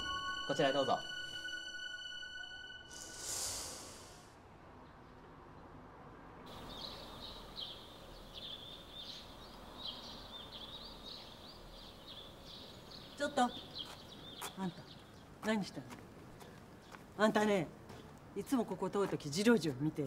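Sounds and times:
faint outdoor background noise: 0:00.0 - 0:20.0
small birds chirping: 0:06.5 - 0:20.0.

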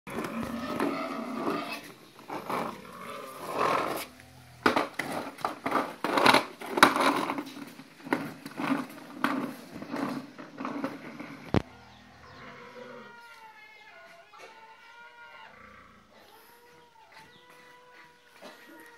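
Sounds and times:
plastic wheels rattling on tiles: 0:04.6 - 0:11.6.

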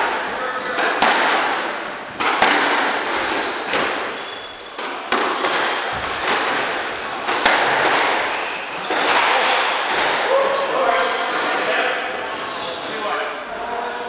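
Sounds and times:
shoes squeaking on court: 0:00.0 - 0:01.0, 0:03.1 - 0:09.2, 0:10.7 - 0:11.5
squash ball cracking off rackets and walls: 0:00.0 - 0:10.3.

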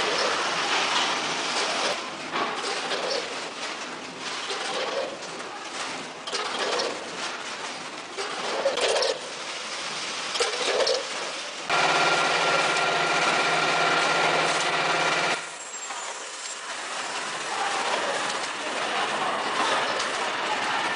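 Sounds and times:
packing machinery clattering: 0:00.0 - 0:20.9
machine hum with whine: 0:11.7 - 0:15.7.

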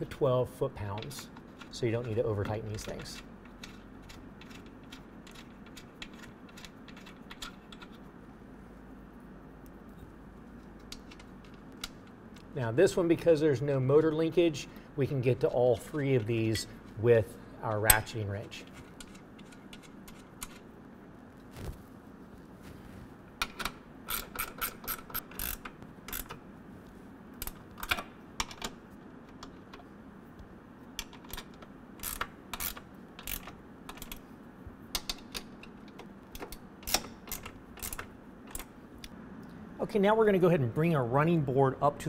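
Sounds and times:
ratcheting wrench clicking: 0:01.5 - 0:08.0, 0:23.4 - 0:26.4, 0:31.0 - 0:34.2, 0:34.9 - 0:38.7.

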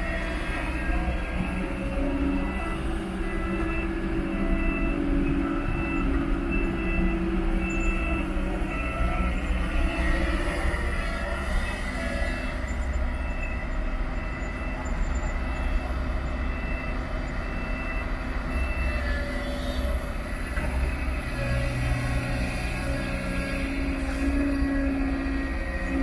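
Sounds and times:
excavator diesel engine rumbling: 0:00.0 - 0:26.0.

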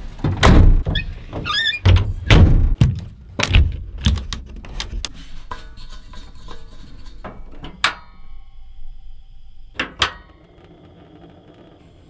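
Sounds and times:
heavy thunks and knocks: 0:00.2 - 0:04.6.

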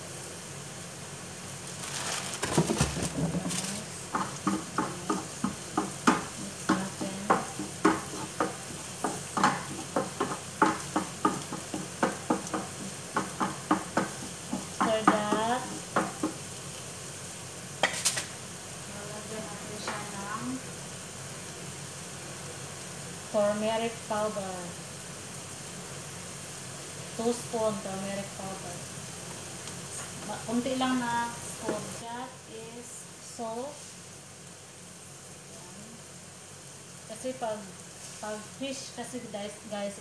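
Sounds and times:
onions sizzling in oil: 0:00.0 - 0:40.0
spatula stirring and knocking in pan: 0:02.4 - 0:16.6, 0:30.0 - 0:32.0.

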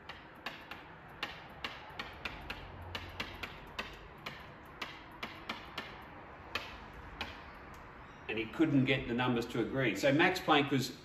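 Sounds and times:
pen tapping on whiteboard: 0:00.0 - 0:07.5.

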